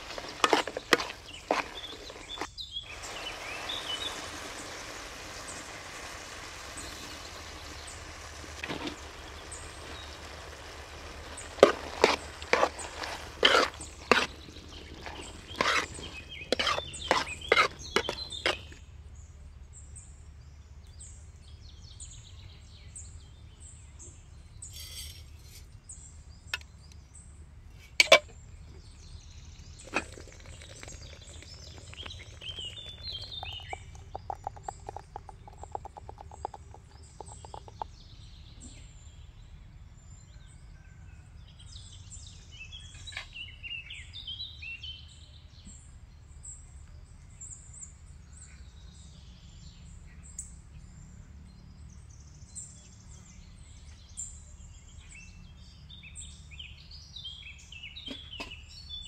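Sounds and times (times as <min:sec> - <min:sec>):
metal ladle scraping a pan: 0:00.0 - 0:03.2, 0:03.8 - 0:18.8, 0:24.7 - 0:25.6
meat sizzling in a metal pan: 0:00.0 - 0:18.6
birds chirping: 0:00.0 - 0:59.0.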